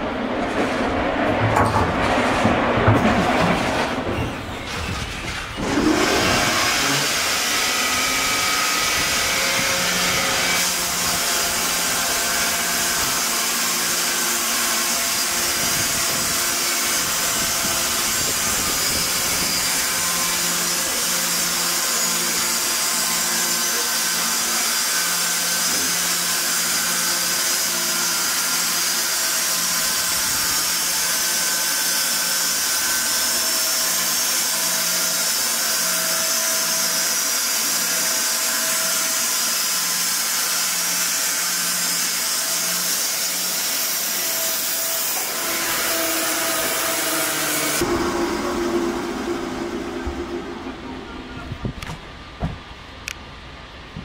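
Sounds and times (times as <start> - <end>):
machine hum: 44.6 - 54.0.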